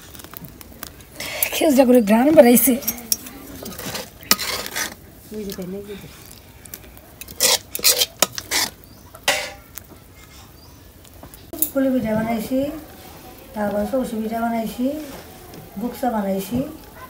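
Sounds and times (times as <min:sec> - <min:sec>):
utensil scraping steel bowl: 0:02.8 - 0:05.6, 0:07.2 - 0:09.6.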